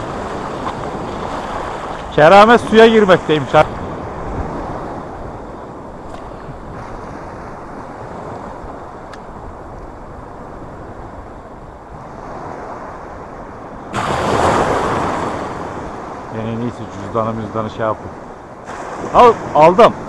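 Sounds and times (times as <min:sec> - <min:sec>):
wave surf rushing: 0:00.0 - 0:20.0
wind on microphone: 0:00.0 - 0:20.0
sea water washing around legs: 0:18.6 - 0:19.2.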